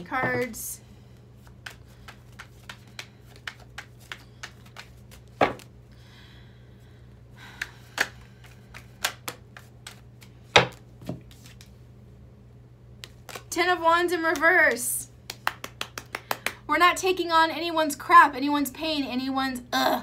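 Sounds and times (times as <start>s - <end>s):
cards being shuffled: 1.4s - 5.7s, 7.6s - 11.8s, 13.0s - 13.6s.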